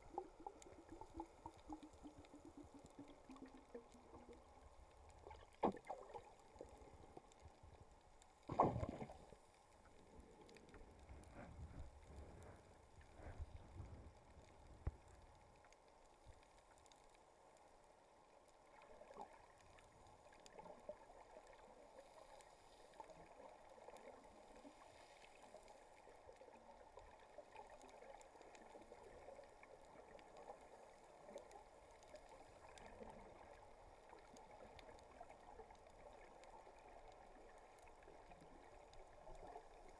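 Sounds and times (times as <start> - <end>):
dull underwater thumps: 8.5 - 9.1.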